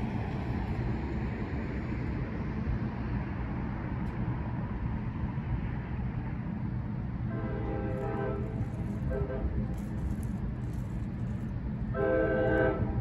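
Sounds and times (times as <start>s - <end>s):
low rumble: 0.0s - 13.0s
train horn blast: 7.3s - 9.7s, 11.9s - 13.0s.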